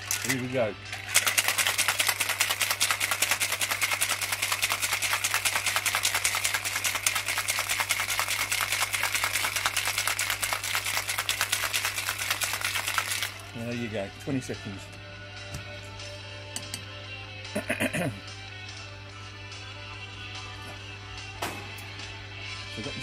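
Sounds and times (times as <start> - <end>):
ice rattling in cocktail shaker: 0.0 - 13.6.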